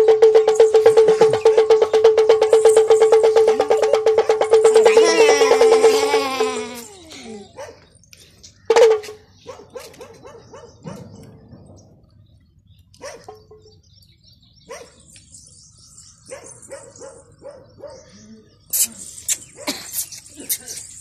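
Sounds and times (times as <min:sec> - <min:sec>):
animal yelping: 0:04.2 - 0:07.7.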